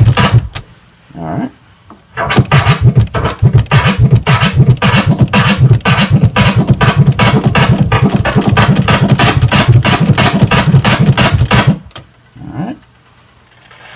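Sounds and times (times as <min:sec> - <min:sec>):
turntable scratching drum sample: 0:00.0 - 0:00.6, 0:02.2 - 0:11.9.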